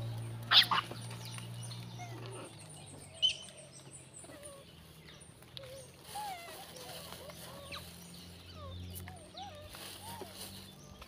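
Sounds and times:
macaques squealing: 0.5s - 1.1s.

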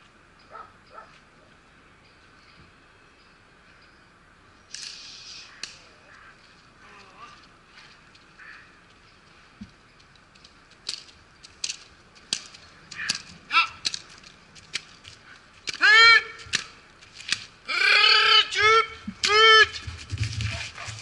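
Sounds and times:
man yelling: 13.5s - 13.8s, 15.8s - 16.4s, 17.7s - 19.8s.

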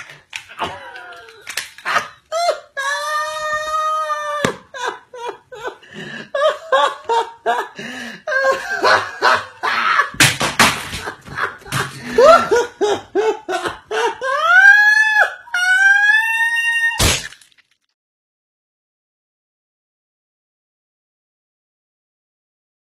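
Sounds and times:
man laughing hard: 0.6s - 16.0s.

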